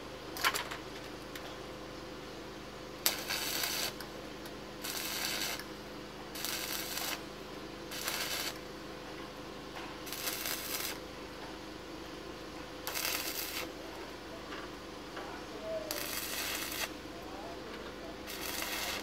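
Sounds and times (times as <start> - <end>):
steady low hum: 0.0 - 19.0
welding arc crackling: 3.0 - 7.3, 7.9 - 8.7, 10.0 - 11.0, 12.8 - 13.8, 15.9 - 17.2, 18.2 - 19.0.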